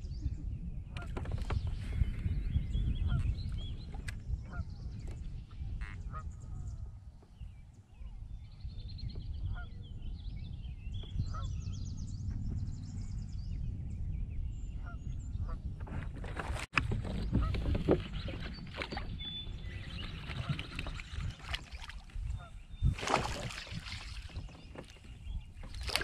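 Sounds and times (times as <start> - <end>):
waterbirds calling: 0.2 - 13.4, 14.5 - 26.0.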